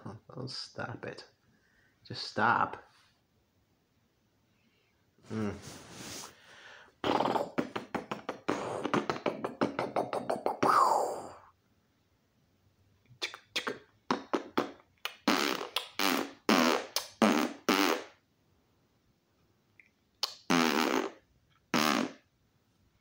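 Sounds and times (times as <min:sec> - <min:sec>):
man making fart noises: 0:05.2 - 0:06.3, 0:07.0 - 0:11.4, 0:13.2 - 0:18.2, 0:20.2 - 0:22.3.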